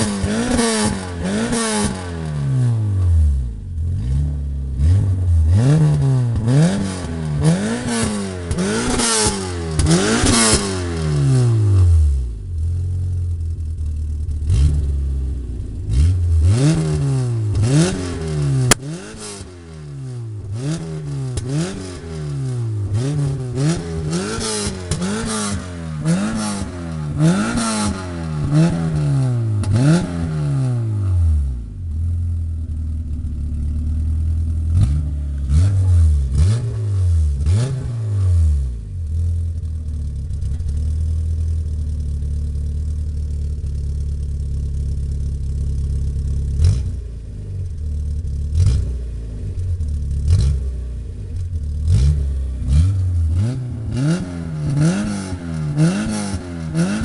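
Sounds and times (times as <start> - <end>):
car engine revving: 0.0 - 57.0
exhaust pops and crackles: 5.9 - 10.7, 16.6 - 19.1, 39.1 - 47.0.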